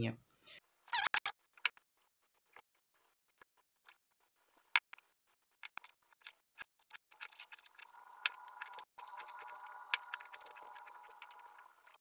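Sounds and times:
faint tonal hum: 7.7s - 12.0s.

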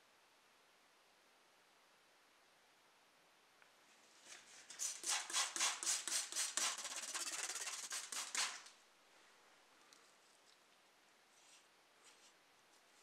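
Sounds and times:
rapid rubbing strokes: 4.2s - 8.8s.

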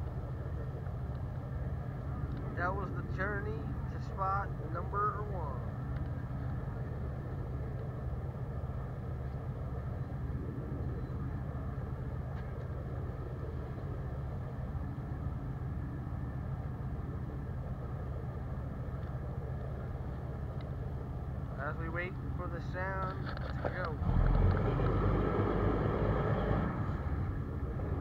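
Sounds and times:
boat engine running: 0.0s - 28.0s.

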